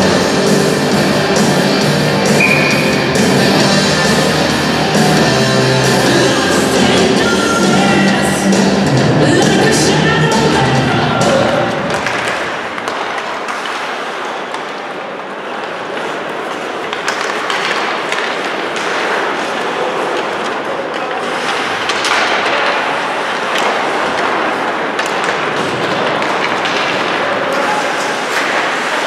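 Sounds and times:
hockey sticks and puck knocking: 11.4 - 29.0.

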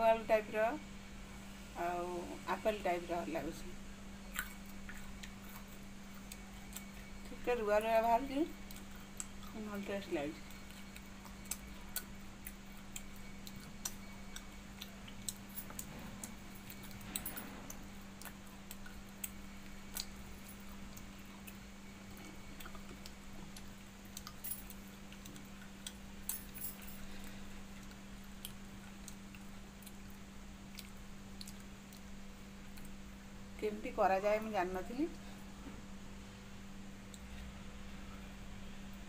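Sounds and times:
steady low hum: 0.0 - 39.0
chewing: 4.3 - 7.3, 8.5 - 9.6, 10.4 - 33.0.

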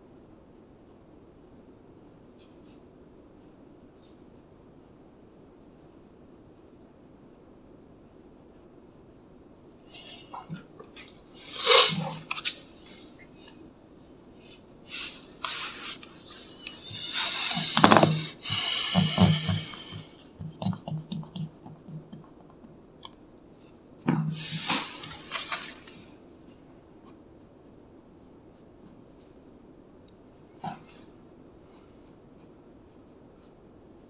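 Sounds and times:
pencil and eraser on paper: 14.4 - 22.2, 24.4 - 26.0.

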